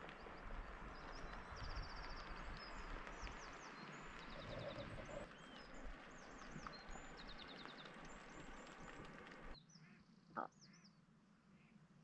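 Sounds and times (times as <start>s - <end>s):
soft steady hiss: 0.0s - 9.6s
small birds trilling and chirping: 0.0s - 11.0s.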